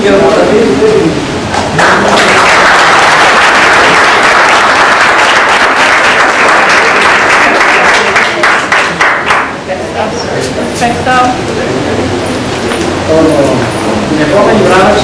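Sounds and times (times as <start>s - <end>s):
audience applauding: 1.8s - 9.6s.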